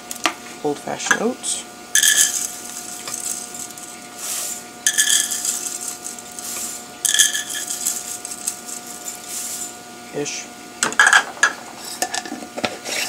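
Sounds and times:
cup and glass clinking: 2.0s - 3.3s, 4.9s - 6.0s, 7.1s - 8.0s
oats pouring into a cup: 2.0s - 9.8s.

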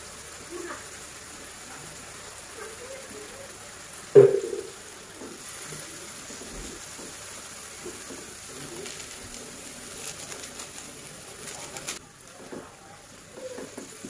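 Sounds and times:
food sizzling in a wok: 0.0s - 14.0s
sharp knock: 4.2s - 4.7s
spatula stirring: 5.3s - 12.5s.

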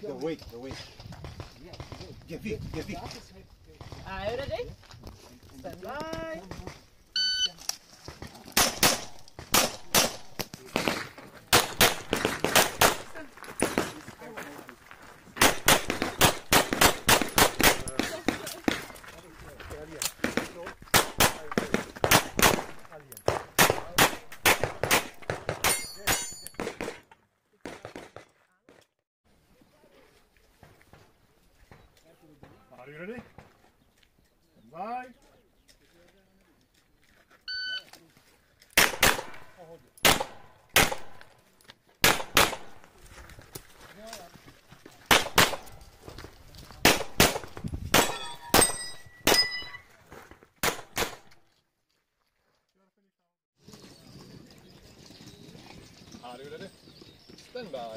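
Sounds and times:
pistol shots: 8.5s - 13.9s, 15.4s - 18.4s, 20.2s - 27.0s, 38.8s - 41.3s, 42.0s - 42.8s, 45.1s - 45.7s, 46.8s - 49.8s, 50.6s - 51.3s
metallic ring: 25.7s - 26.6s, 48.1s - 49.9s.

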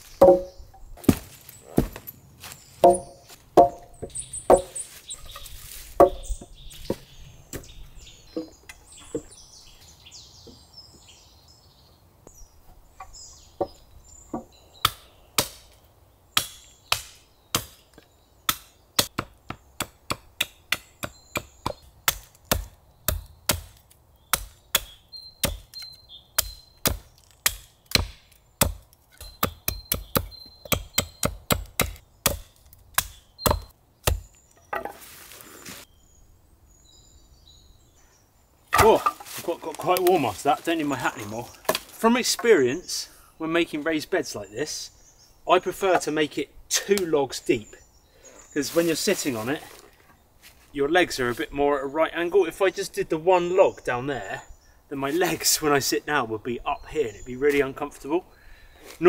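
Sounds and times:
logs knocking together: 0.0s - 2.1s, 2.8s - 7.7s, 34.6s - 35.1s, 38.7s - 42.5s
hatchet chopping wood: 0.1s - 2.1s, 2.8s - 4.8s, 6.0s - 6.3s, 14.4s - 15.7s, 16.4s - 17.8s, 18.5s - 35.0s, 38.7s - 39.4s, 41.6s - 41.9s.

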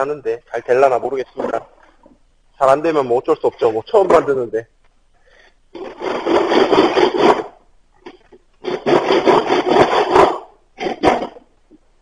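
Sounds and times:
hand tool scraping wood: 5.8s - 11.5s.

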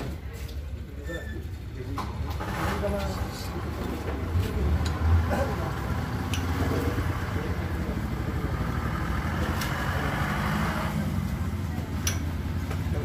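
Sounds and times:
engine humming: 2.1s - 13.0s.

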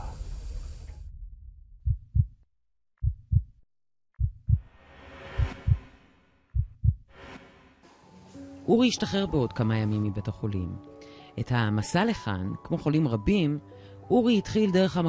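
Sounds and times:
heartbeat thumps: 1.8s - 2.4s, 3.0s - 3.6s, 4.2s - 4.7s, 5.4s - 7.1s
whoosh: 4.6s - 8.1s.

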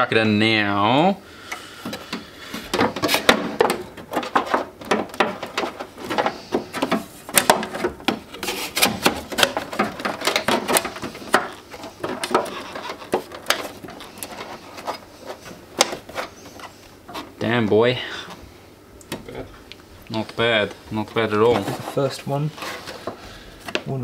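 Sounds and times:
metal panel knocking and scraping: 1.9s - 15.0s.

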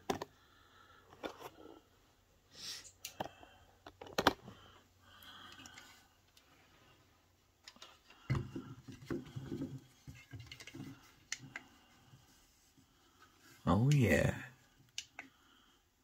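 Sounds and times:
plastic bars knocking and rubbing: 8.2s - 11.6s.

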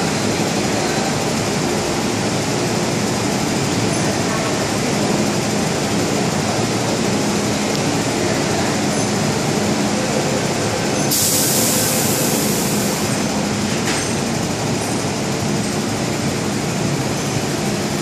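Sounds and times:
train equipment humming: 0.0s - 18.0s
loud hiss: 11.1s - 13.2s.

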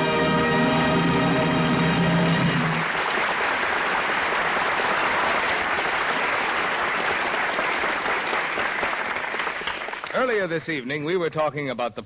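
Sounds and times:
studio audience applauding: 1.9s - 10.6s.

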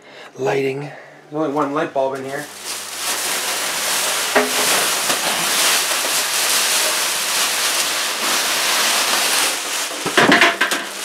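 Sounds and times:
plastic bag rustling and crinkling: 2.2s - 11.0s.

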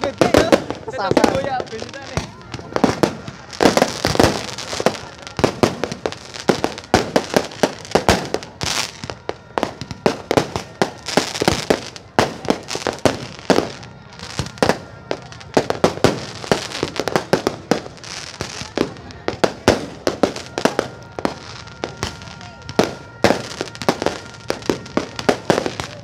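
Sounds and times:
fireworks bangs and crackles: 0.0s - 26.0s.

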